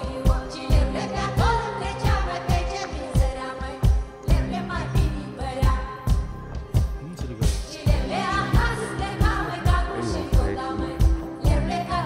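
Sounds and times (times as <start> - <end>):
pop song with singing: 0.0 - 12.0
steady thumping beat: 3.2 - 11.8.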